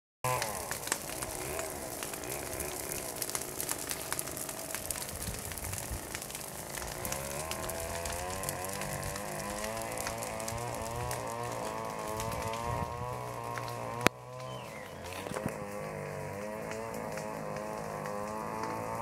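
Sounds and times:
brush fire crackling: 0.2 - 19.0
motor running: 6.8 - 19.0.

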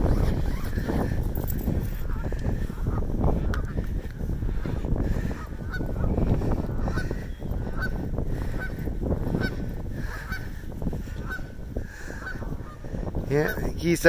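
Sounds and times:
steady low rumble: 0.0 - 13.4
geese honking: 2.0 - 13.0.

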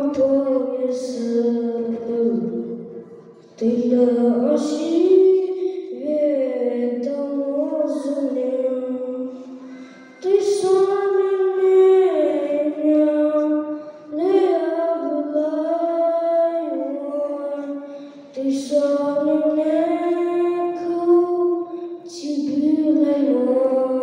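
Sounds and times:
boy singing into a microphone: 0.0 - 24.0
singer breathing: 9.3 - 10.2, 13.7 - 14.1, 17.8 - 18.4.

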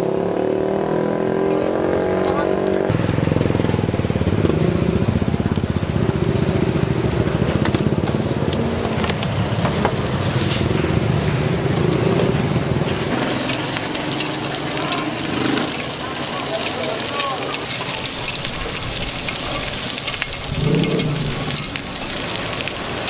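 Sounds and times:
motorcycle engine running: 0.1 - 9.8, 17.9 - 23.0
food sizzling: 12.8 - 23.0.

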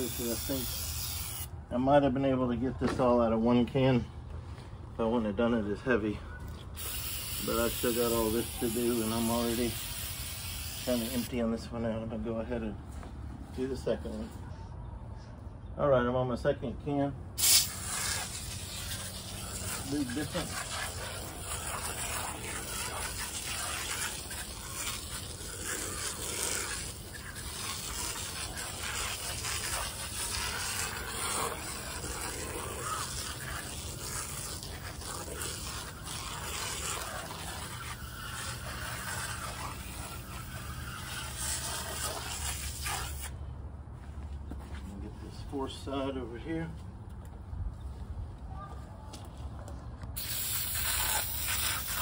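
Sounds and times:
aerosol can spraying hiss: 6.8 - 11.3, 17.4 - 43.3, 50.2 - 52.0.

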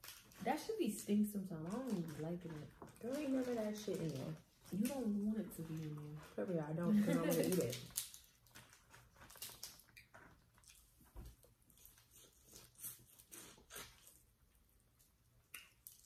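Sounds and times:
small clicks and crackles: 0.0 - 13.0, 15.0 - 16.0
chewing and mouth smacks: 7.3 - 16.0.

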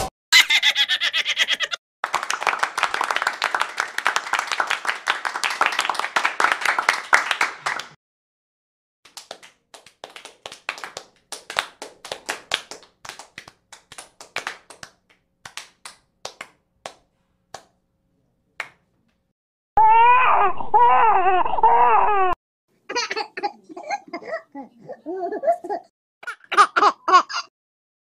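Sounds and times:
hand claps: 2.0 - 8.0, 9.1 - 17.8, 18.6 - 18.9.

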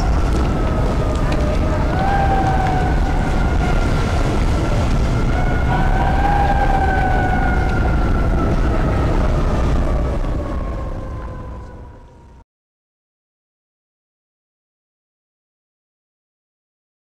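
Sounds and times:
city traffic rumble: 0.0 - 12.4
emergency siren wailing: 0.0 - 12.4.

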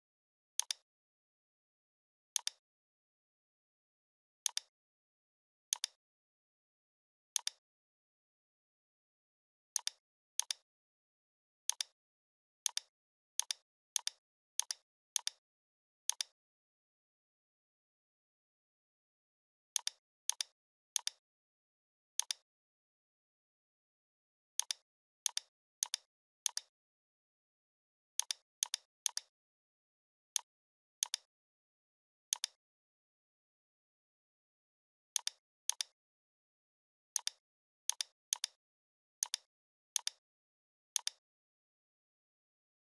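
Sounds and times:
computer mouse clicks: 0.6 - 0.8, 2.4 - 2.6, 4.4 - 4.7, 5.7 - 6.0, 9.8 - 10.6, 11.7 - 12.0, 12.6 - 15.4, 16.1 - 16.3, 19.8 - 21.2, 22.2 - 22.4, 24.6 - 26.7, 28.2 - 29.3, 30.4 - 31.3, 32.3 - 32.6, 35.2 - 36.0, 37.2 - 38.6, 39.2 - 40.2, 41.0 - 41.2.

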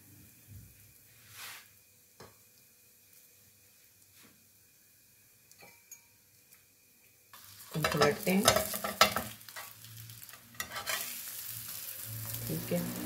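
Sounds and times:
hot oil sizzling: 0.0 - 13.0.

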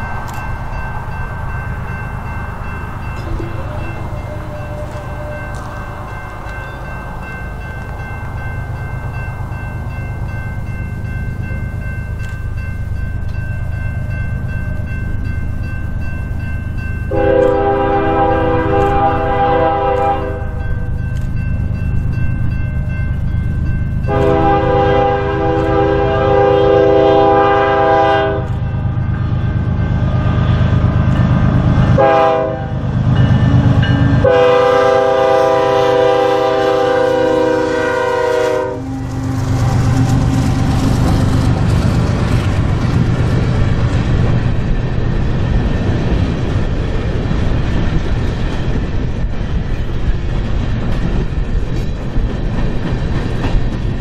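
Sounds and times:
locomotives rumbling past: 0.0 - 54.0
train wheels on rails: 0.0 - 54.0
locomotive air horn blasts: 3.2 - 6.4, 17.1 - 20.6, 24.1 - 28.6, 32.0 - 32.8, 33.6 - 39.2.

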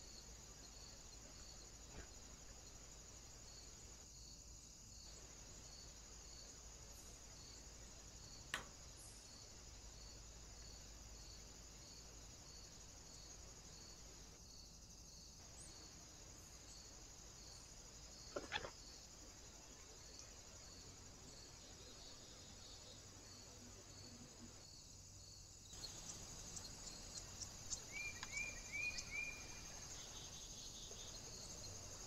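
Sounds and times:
faint high hiss: 0.0 - 32.0
soft chirp: 25.8 - 31.6.

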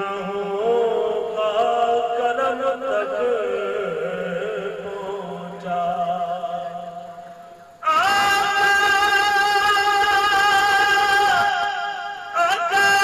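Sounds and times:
man chanting through microphone: 0.0 - 13.0.

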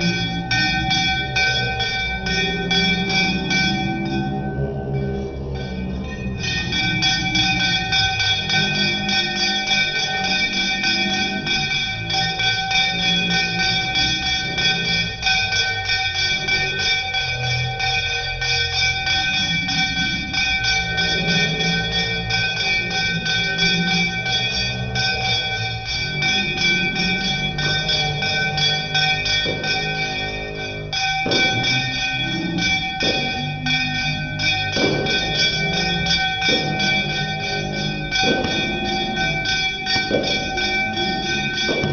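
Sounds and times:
bell rung rapidly: 0.0 - 41.9.

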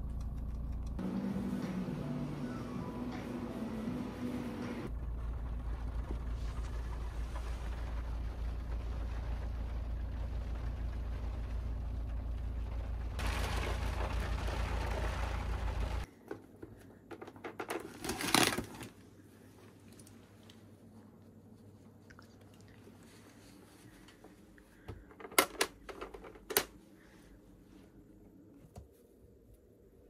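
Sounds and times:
car cabin low rumble: 0.0 - 16.1
loud clatter: 5.7 - 16.0.

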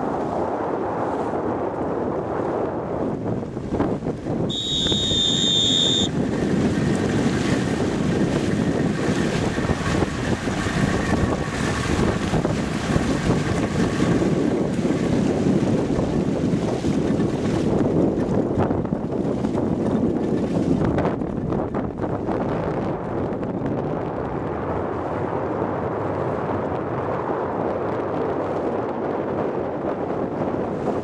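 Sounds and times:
water rushing past boat: 0.0 - 31.0
wind buffeting microphone: 0.0 - 31.0
steady high-pitched tone: 4.5 - 6.1.

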